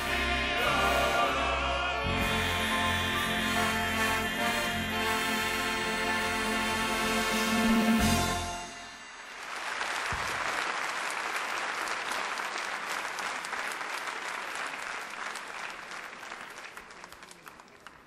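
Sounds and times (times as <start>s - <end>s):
audience applauding: 9.2s - 18.0s.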